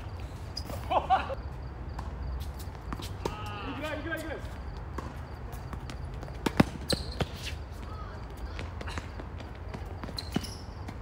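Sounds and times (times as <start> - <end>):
tennis ball bouncing on court: 1.9 - 3.4, 4.6 - 7.6.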